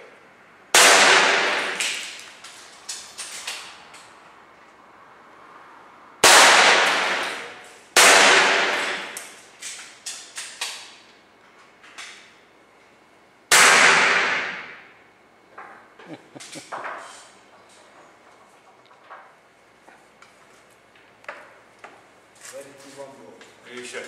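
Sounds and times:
air rifle shots with echo: 0:00.8 - 0:02.2, 0:06.2 - 0:09.2, 0:13.5 - 0:14.8.

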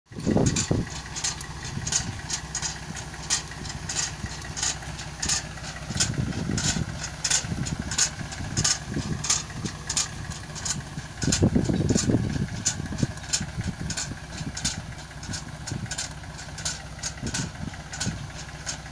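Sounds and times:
engine running: 0:00.1 - 0:18.9.

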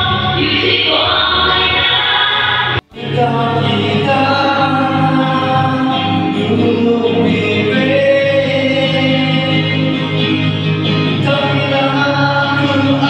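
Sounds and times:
children singing a church song: 0:00.0 - 0:10.1.

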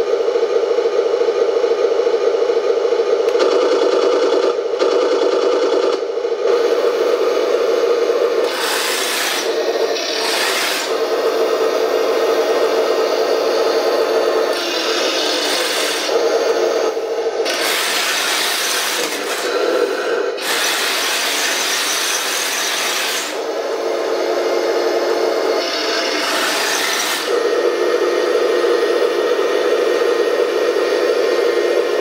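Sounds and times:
steady hum: 0:00.0 - 0:20.4
model tank motors whirring: 0:03.2 - 0:30.5
metal tracks grinding on wood: 0:08.4 - 0:11.0, 0:17.4 - 0:23.4, 0:25.6 - 0:27.4.

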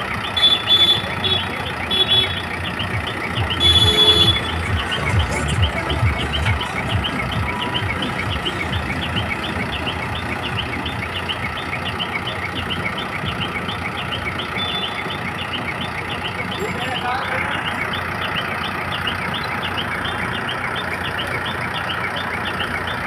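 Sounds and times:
diesel engine idling: 0:00.0 - 0:23.0
rapid high chirping: 0:00.0 - 0:23.0
loud high tone: 0:00.3 - 0:12.5.

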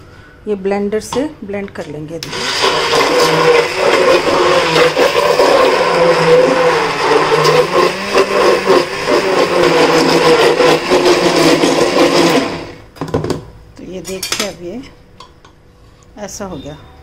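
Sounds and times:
immersion blender whirring: 0:02.2 - 0:12.9.

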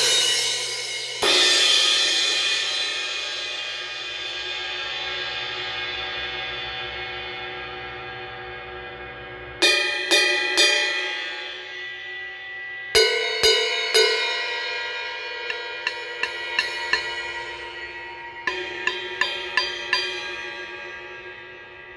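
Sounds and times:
cymbal struck with drumstick: 0:00.0 - 0:07.4, 0:09.6 - 0:21.9.

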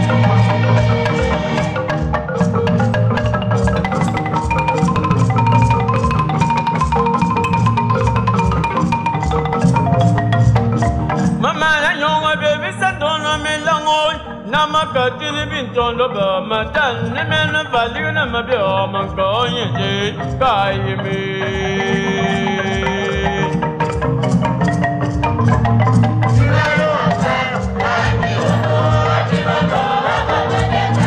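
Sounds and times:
choir singing: 0:00.0 - 0:02.1, 0:26.4 - 0:31.0
wooden xylophone: 0:00.0 - 0:31.0.

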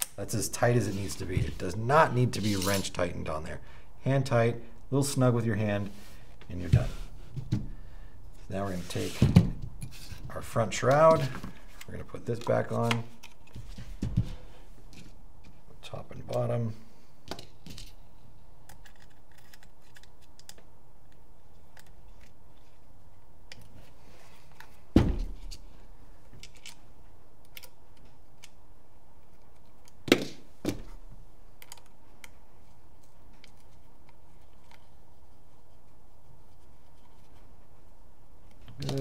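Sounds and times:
small clicks and taps of screws: 0:31.6 - 0:32.4.

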